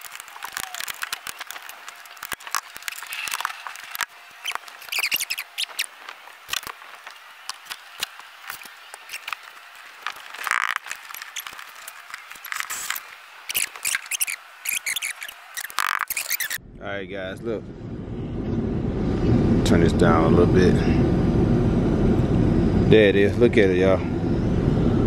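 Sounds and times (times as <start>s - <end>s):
hands clicking and scraping trim: 0.0s - 16.6s.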